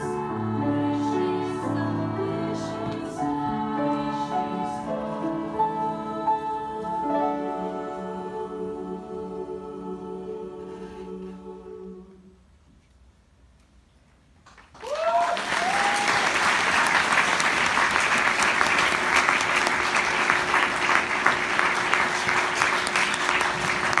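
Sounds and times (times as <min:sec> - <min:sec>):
audience clapping: 0:14.4 - 0:24.0
whooping cheers: 0:14.8 - 0:16.4.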